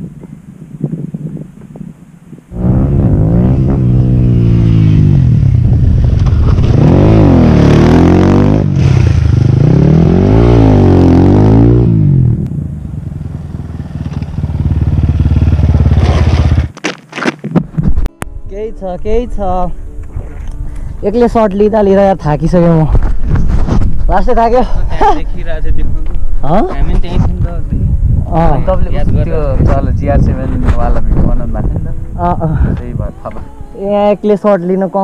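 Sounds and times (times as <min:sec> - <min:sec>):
dirt bike engine revving: 0:02.5 - 0:12.5.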